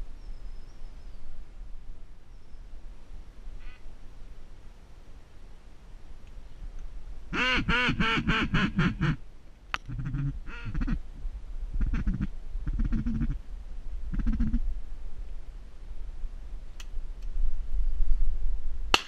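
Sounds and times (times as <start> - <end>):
duck quacking: 7.3 - 9.2, 9.9 - 11.0, 11.8 - 13.4, 14.1 - 14.6.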